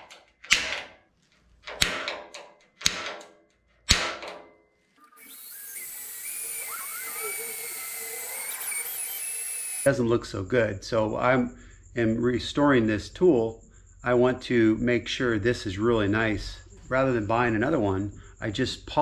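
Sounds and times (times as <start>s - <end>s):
sharp metallic snaps: 0.0s - 1.0s, 1.6s - 4.5s
cordless drill drilling: 5.1s - 9.9s.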